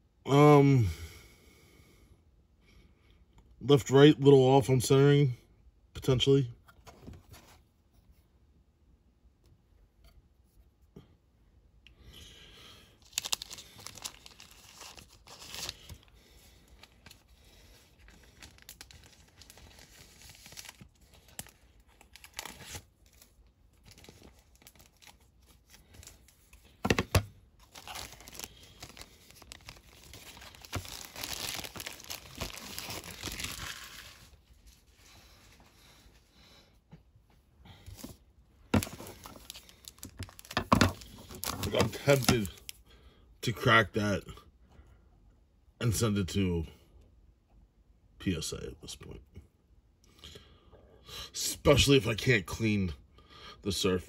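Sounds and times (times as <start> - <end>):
plastic bags crinkling: 13.0 - 34.7, 38.7 - 42.7.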